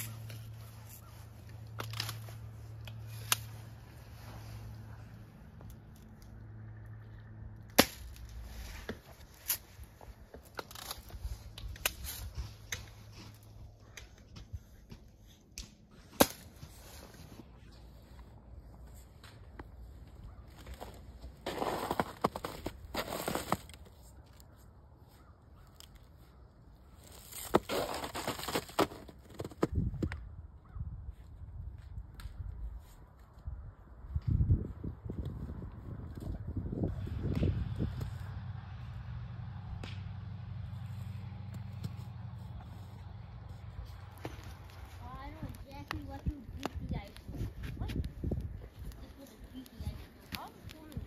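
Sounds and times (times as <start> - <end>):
footsteps crunching in snow: 19.8 - 25.3, 26.9 - 29.8.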